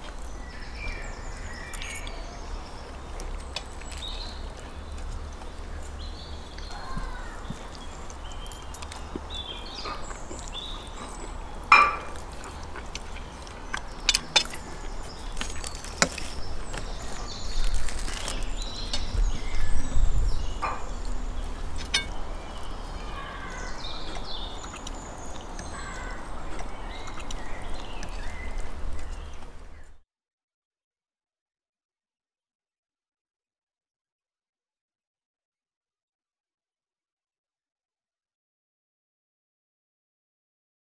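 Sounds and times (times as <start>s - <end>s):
birds chirping: 0.0s - 30.0s
forks clinking against plates: 11.7s - 12.4s, 21.7s - 22.3s.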